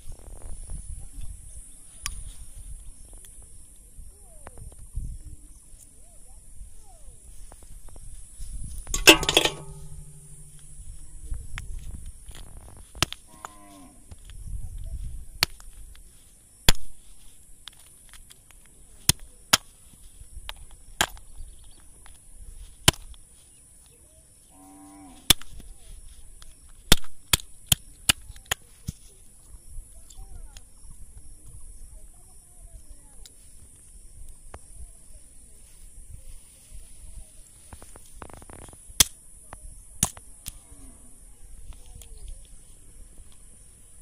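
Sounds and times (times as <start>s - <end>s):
snail shells smashed on rock: 26.9s - 28.6s.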